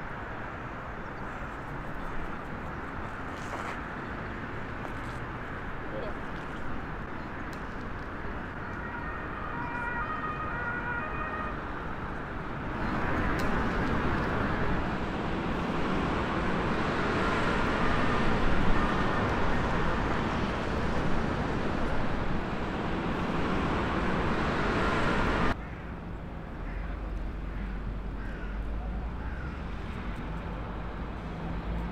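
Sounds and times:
city road traffic: 0:00.0 - 0:31.9
distant emergency siren: 0:08.3 - 0:25.6.

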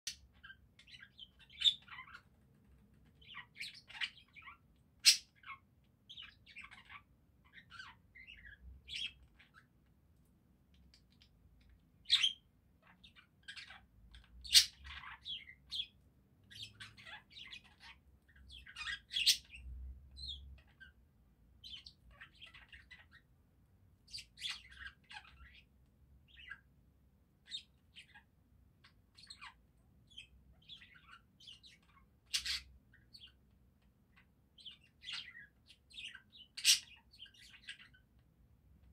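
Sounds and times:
budgerigars chirping and twittering: 0:00.1 - 0:09.8, 0:10.7 - 0:21.0, 0:21.6 - 0:23.4, 0:24.0 - 0:38.9.

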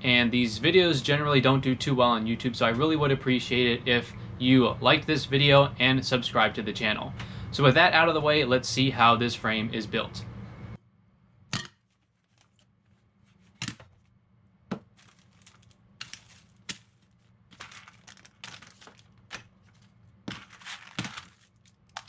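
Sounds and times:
faint low hum: 0:00.0 - 0:11.6
paper crinkling and rustling: 0:11.8 - 0:14.1, 0:14.8 - 0:22.0.

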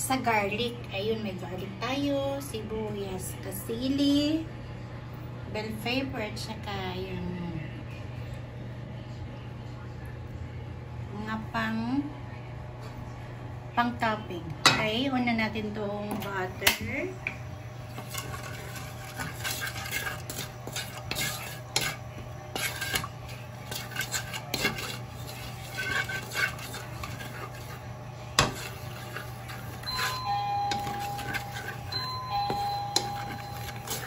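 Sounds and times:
low steady hum: 0:00.0 - 0:34.0
spatula scraping a wok: 0:17.8 - 0:34.0.

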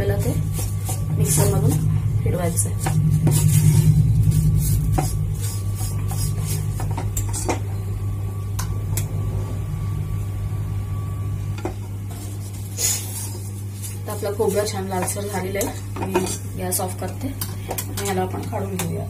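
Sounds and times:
spatula scraping in a pan: 0:00.0 - 0:07.8, 0:11.6 - 0:19.0
steady low hum: 0:00.0 - 0:19.0.

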